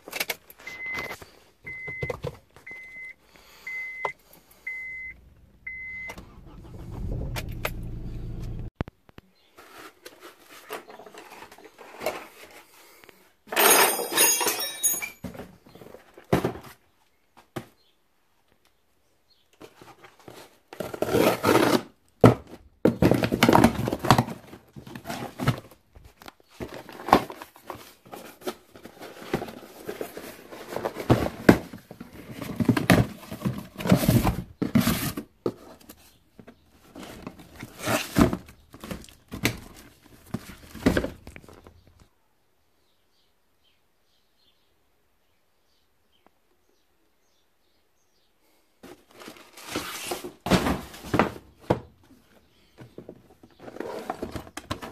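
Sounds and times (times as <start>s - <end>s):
cardboard box and paper rustling: 9.5s - 12.7s, 19.6s - 41.8s, 48.8s - 51.8s, 52.9s - 54.9s.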